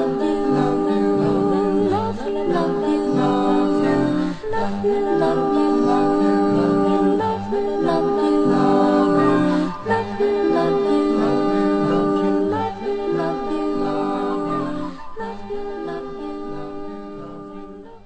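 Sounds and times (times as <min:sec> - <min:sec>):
voices singing held notes: 0:00.0 - 0:18.0.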